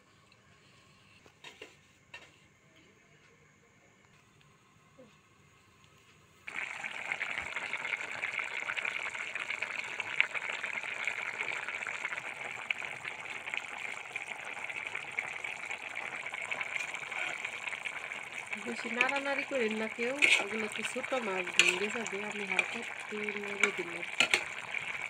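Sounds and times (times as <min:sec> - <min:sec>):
curry boiling in a metal pot: 0:05.2 - 0:25.0.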